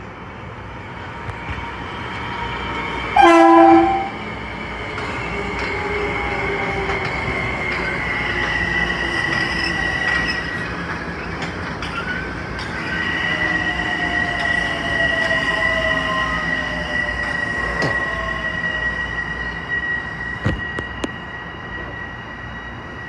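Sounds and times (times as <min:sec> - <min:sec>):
train rumbling: 0:00.0 - 0:23.0
train horn blast: 0:03.2 - 0:04.2.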